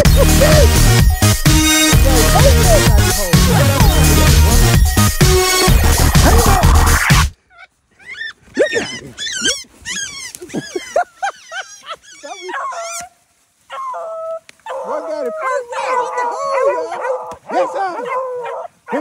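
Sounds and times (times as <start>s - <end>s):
music: 0.0s - 7.3s
hounds whining and yelping: 7.5s - 19.0s
hound howling: 13.7s - 19.0s.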